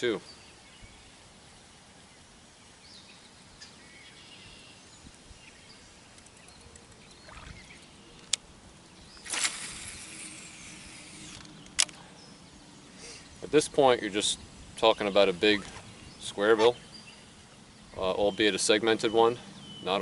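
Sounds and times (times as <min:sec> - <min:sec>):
faint bird chirps: 0:02.8 - 0:09.4
reel spool humming: 0:09.2 - 0:11.6.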